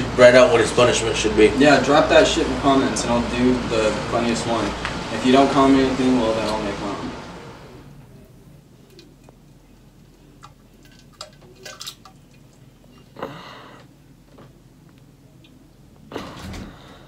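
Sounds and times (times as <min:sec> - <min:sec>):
drips: 0:10.0 - 0:13.2.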